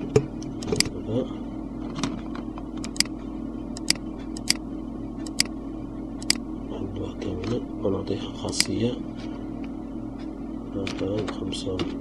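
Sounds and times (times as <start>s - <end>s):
low electrical hum: 0.0s - 12.0s
computer mouse button clicking: 3.8s - 4.6s, 5.3s - 5.5s.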